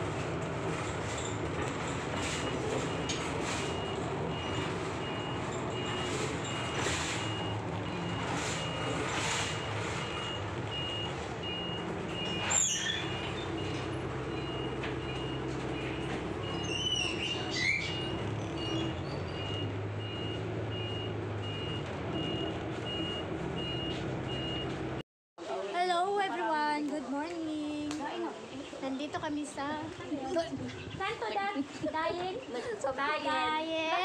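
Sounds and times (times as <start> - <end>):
bus engine drone: 0.0 - 25.0
sharp squeals: 12.2 - 13.8, 15.8 - 19.7.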